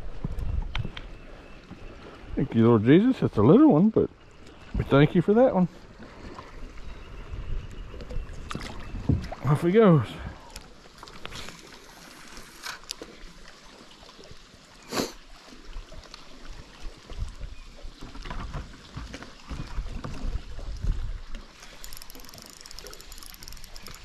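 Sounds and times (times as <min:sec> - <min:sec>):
spinning reel ticking: 0:21.6 - 0:24.0.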